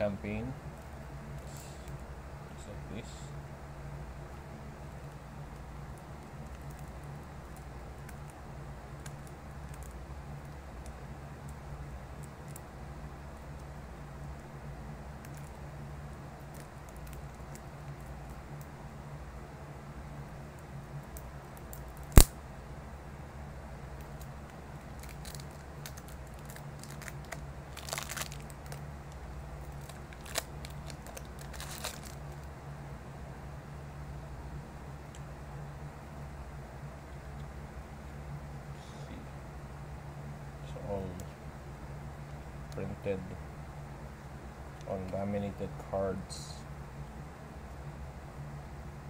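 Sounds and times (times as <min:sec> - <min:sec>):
plastic wrapping crinkling: 0:24.9 - 0:28.8, 0:29.6 - 0:32.5
fingers handling cards: 0:29.6 - 0:32.4.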